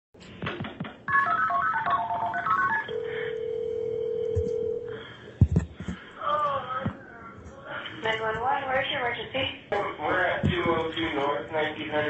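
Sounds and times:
telephone ringing tone: 0:01.1 - 0:05.0
telephone key tones: 0:01.6 - 0:04.8.

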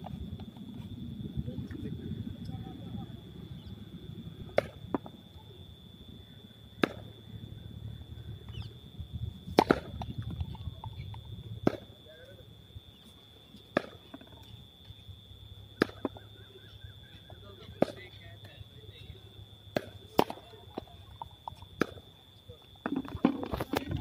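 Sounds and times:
steady high-pitched whine: 0:00.0 - 0:24.0
cricket ball knocking bat: 0:04.5 - 0:05.2, 0:06.8 - 0:07.1, 0:09.5 - 0:11.9, 0:13.7 - 0:14.4, 0:15.8 - 0:16.2, 0:21.5 - 0:22.0.

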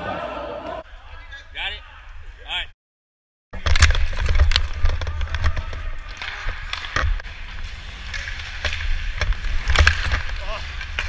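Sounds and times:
skates scraping on ice: 0:04.0 - 0:11.0.

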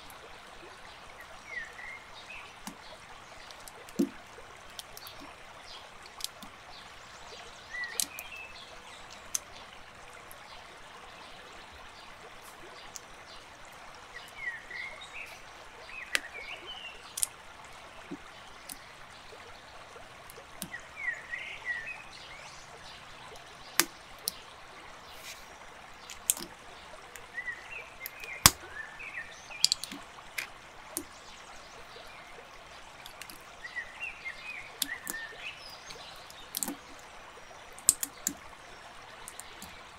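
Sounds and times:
sharp clicks: 0:29.6 - 0:31.1.

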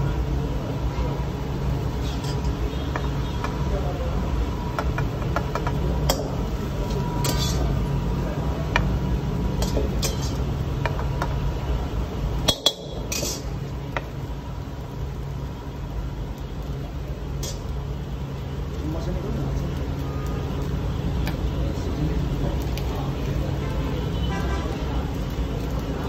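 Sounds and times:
ladle scraping a steel wok: 0:01.8 - 0:02.7, 0:06.8 - 0:07.9, 0:09.5 - 0:10.5, 0:13.0 - 0:13.6.

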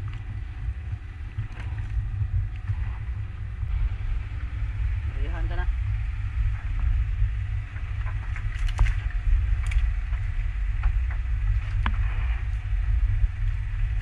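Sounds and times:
boat motor rumble: 0:00.0 - 0:14.0.

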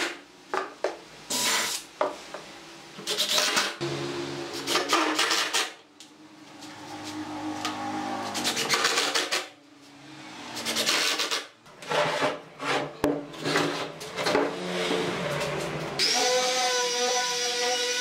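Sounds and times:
wood scraping and rubbing: 0:10.7 - 0:15.8.

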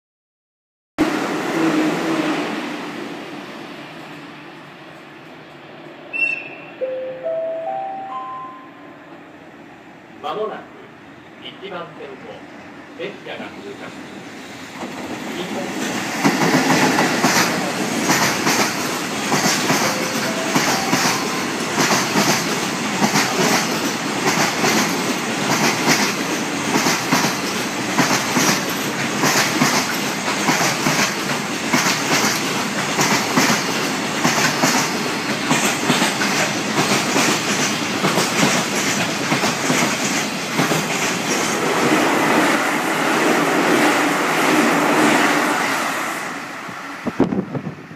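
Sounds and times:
electric train running noise: 0:13.6 - 0:47.9
train wheels clattering over joints: 0:14.8 - 0:42.0.

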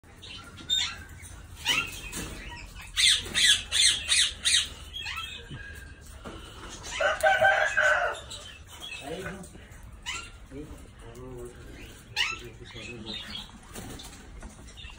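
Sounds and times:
parakeets screeching: 0:00.1 - 0:14.9.

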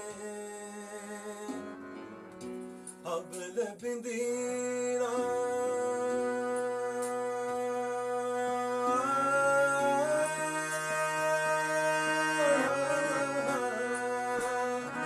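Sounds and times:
man singing: 0:00.0 - 0:02.0, 0:03.0 - 0:15.0
harmonium chords: 0:00.0 - 0:15.0.

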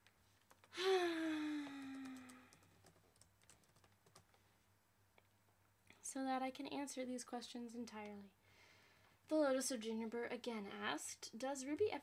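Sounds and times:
woman's wordless falling vocal: 0:00.7 - 0:02.5
typing on computer keyboard: 0:01.6 - 0:04.4.

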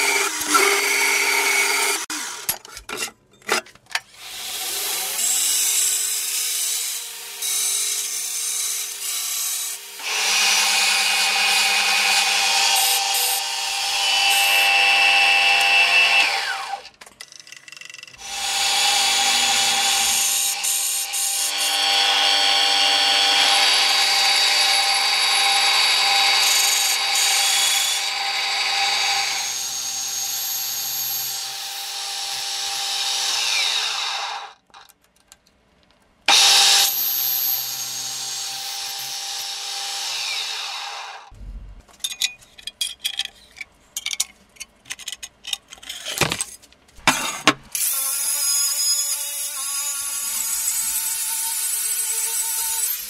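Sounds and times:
hole cutter whining through steel: 0:00.0 - 0:02.7, 0:04.1 - 0:17.0, 0:18.2 - 0:34.6, 0:36.3 - 0:41.3.

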